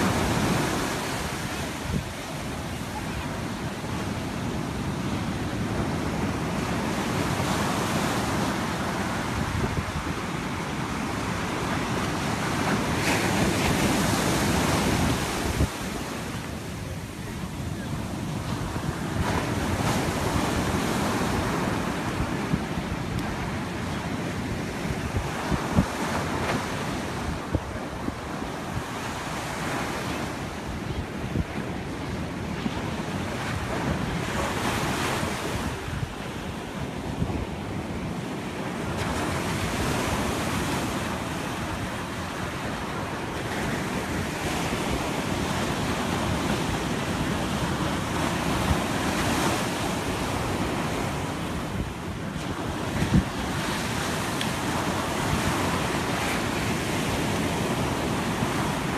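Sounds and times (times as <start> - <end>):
ocean surf breaking: 0.0 - 58.9
wind buffeting microphone: 0.0 - 58.9.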